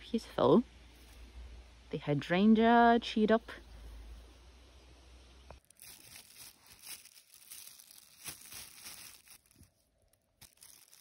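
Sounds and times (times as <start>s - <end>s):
plastic bag crinkling: 5.6s - 11.0s.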